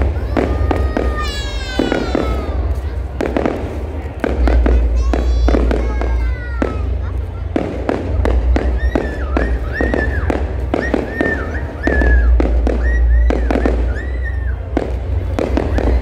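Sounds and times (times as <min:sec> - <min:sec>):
fireworks bangs and crackles: 0:00.0 - 0:16.0
high whistle-like tone: 0:08.6 - 0:14.7.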